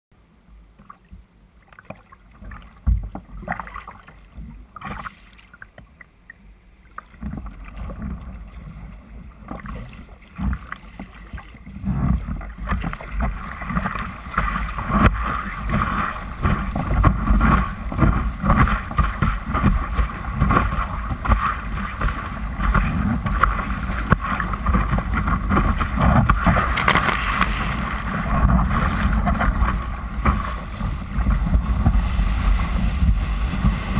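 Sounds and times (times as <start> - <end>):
water splashing against kayak: 0.7 - 33.9
paddle strokes: 0.8 - 33.9
whitewater rushing: 12.5 - 33.9.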